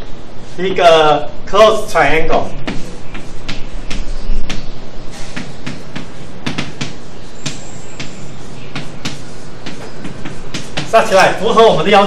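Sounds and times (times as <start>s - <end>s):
chalk tapping and scratching: 2.4s - 12.0s.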